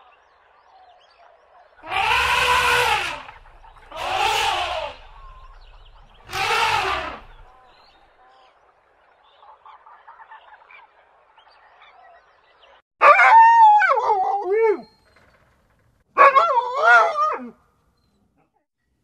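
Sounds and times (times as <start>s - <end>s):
dog howling: 1.8s - 5.4s, 6.2s - 7.5s.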